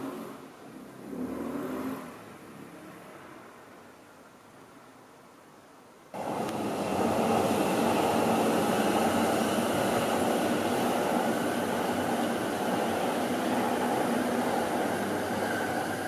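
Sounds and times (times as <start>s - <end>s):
train wheels rumbling on rails: 6.2s - 16.0s.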